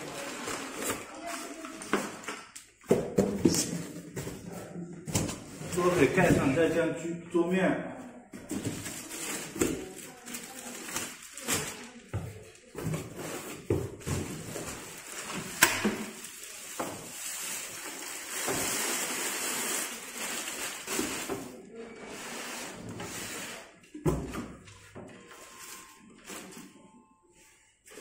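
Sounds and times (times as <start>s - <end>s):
plastic film rustling and crinkling: 0.0s - 2.5s, 8.4s - 22.8s.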